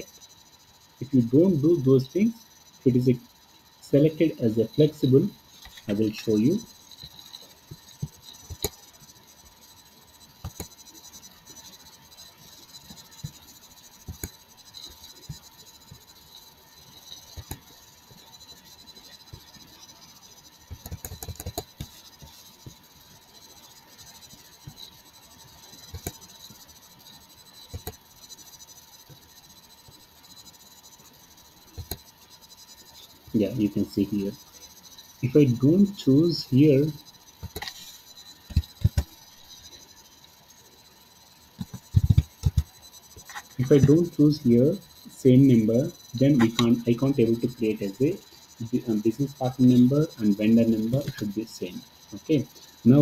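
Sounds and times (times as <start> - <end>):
faint electrical hum: 0.0 - 53.0
computer mouse clicks: 10.4 - 10.8, 14.0 - 14.4, 17.3 - 17.7, 20.7 - 22.8, 25.8 - 26.3, 27.7 - 28.0, 31.7 - 32.1, 37.4 - 39.2, 41.6 - 44.0.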